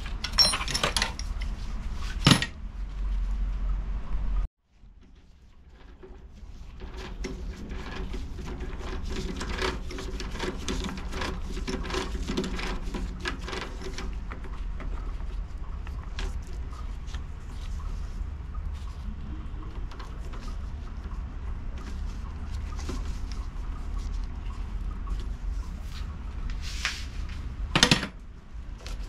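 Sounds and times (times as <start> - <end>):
steady low hum: 0.0 - 29.0
metallic clicks and scrapes: 5.0 - 19.0.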